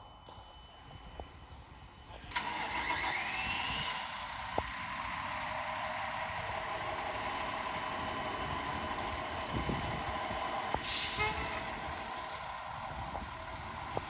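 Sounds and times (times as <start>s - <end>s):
diesel engine idling: 2.2s - 14.0s.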